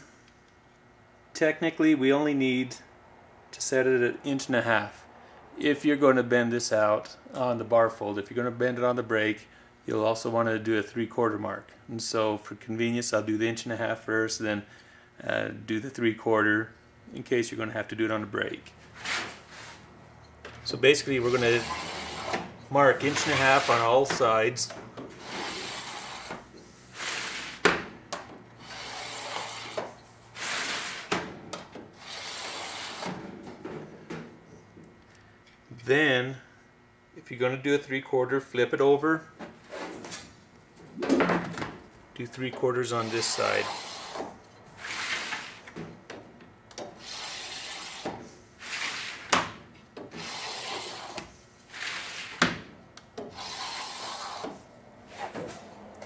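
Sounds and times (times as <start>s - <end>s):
metal scribe scraping sheet metal: 21.0s - 24.2s, 25.2s - 27.7s, 28.6s - 31.2s, 32.0s - 33.2s, 42.9s - 45.6s, 47.0s - 49.3s, 50.1s - 52.4s, 53.2s - 55.5s.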